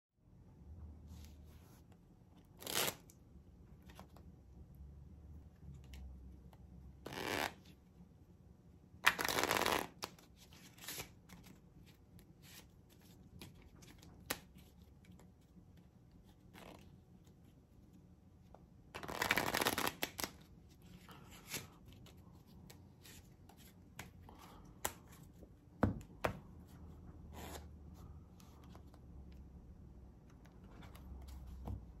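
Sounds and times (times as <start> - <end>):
playing cards riffle-shuffled: 2.5 - 3.1, 7.0 - 7.7, 9.0 - 15.5, 18.9 - 24.2.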